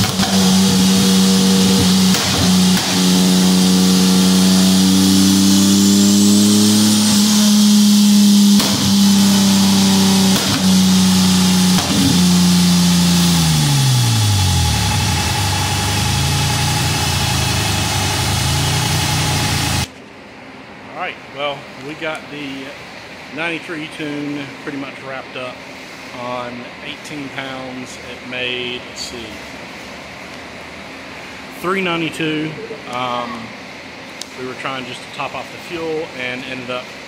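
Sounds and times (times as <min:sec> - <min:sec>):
car engine revving on dyno: 0:00.0 - 0:19.9.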